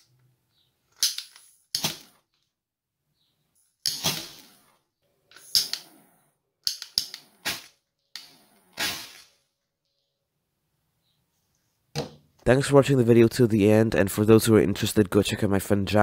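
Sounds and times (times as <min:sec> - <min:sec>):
small explosive charges cracking: 0:08.7 - 0:09.4.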